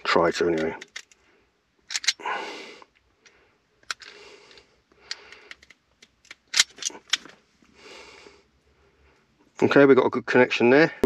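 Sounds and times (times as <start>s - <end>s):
crimping pliers clicking: 1.9s - 2.2s.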